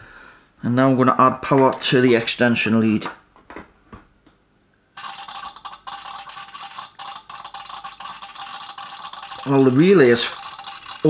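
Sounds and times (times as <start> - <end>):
relay rapidly clicking: 5.0 - 11.0.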